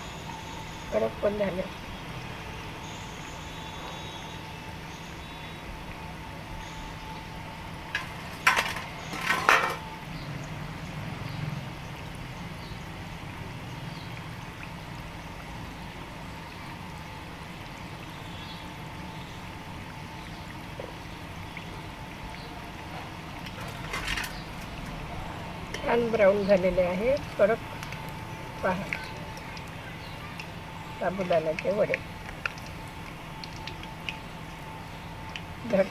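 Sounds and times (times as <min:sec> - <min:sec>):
food sizzling in hot oil: 0:06.6 - 0:18.3, 0:23.1 - 0:35.9
utensils clinking against pan: 0:08.0 - 0:09.8, 0:23.6 - 0:24.4.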